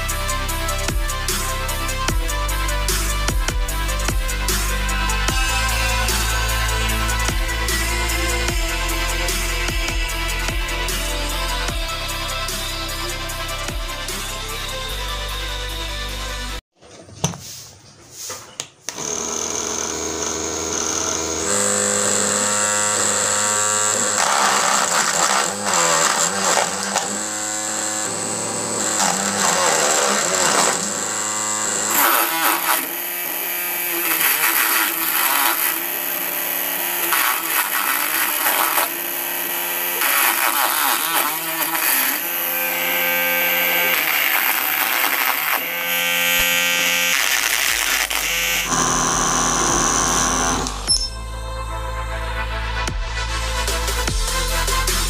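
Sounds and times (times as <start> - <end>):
small electric motor running: 0.0 - 14.9, 18.9 - 51.2
background music: 0.0 - 16.6, 48.1 - 55.0
blade chopping chillies: 24.0 - 27.2.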